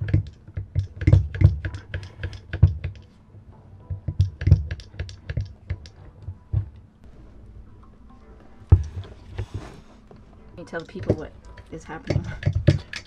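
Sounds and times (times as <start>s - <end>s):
pump handle clicking and knocking: 0.0s - 3.1s, 3.9s - 6.8s, 10.7s - 13.0s.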